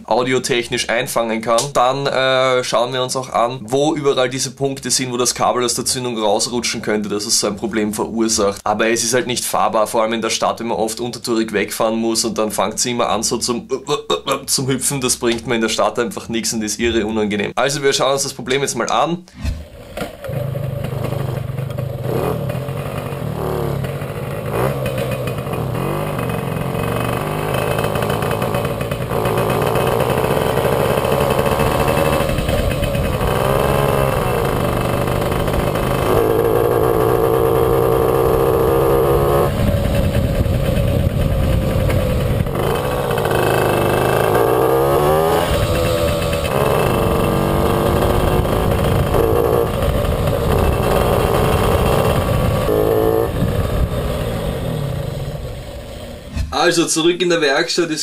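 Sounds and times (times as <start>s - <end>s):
moped two-stroke engine running: 20.1s - 56.3s.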